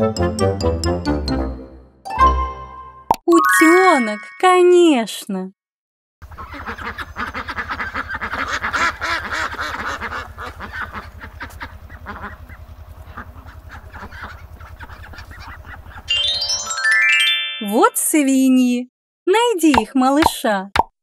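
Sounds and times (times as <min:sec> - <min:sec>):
ducks quacking: 0:06.2 - 0:16.1
steady low hum: 0:06.4 - 0:16.1.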